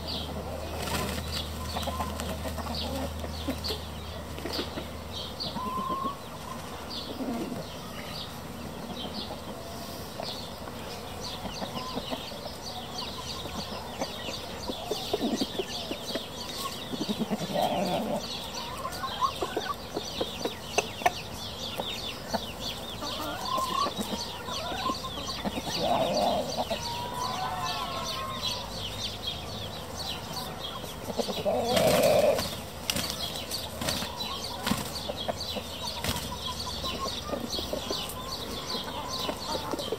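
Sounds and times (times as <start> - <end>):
chickens clucking: 0.0 - 39.9
wings flapping: 0.7 - 2.3.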